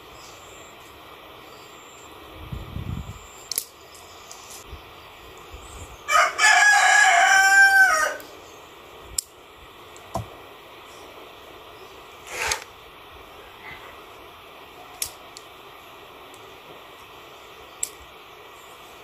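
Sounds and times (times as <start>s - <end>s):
rooster crowing: 6.1s - 8.3s.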